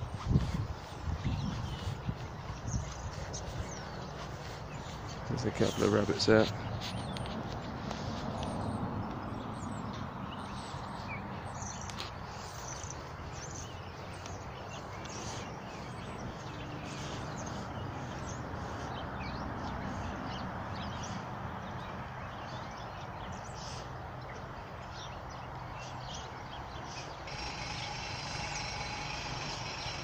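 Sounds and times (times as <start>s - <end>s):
birds chirping: 0.0s - 30.0s
outdoor background hiss: 26.8s - 30.0s.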